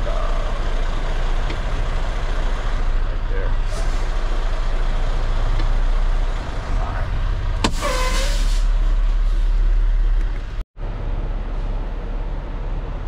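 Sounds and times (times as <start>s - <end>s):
air brake pop and hiss: 7.6s - 8.7s.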